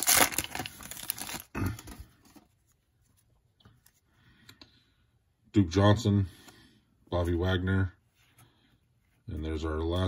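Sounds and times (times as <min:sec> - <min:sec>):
foil wrapper crinkling and tearing: 0:00.0 - 0:01.9.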